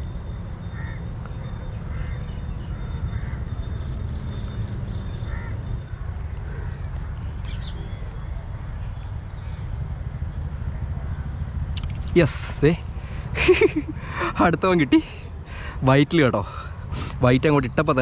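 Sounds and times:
steady low rumble: 0.0 - 18.0
crows cawing: 0.6 - 3.7, 5.1 - 8.2.

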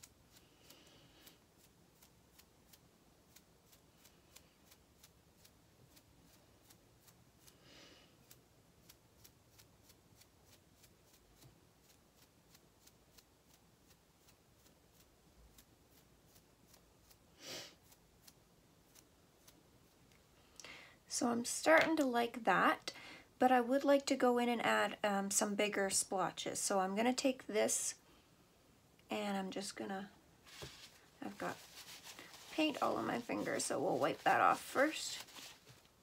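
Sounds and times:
soft hisses: 17.1 - 18.0, 29.6 - 36.0.

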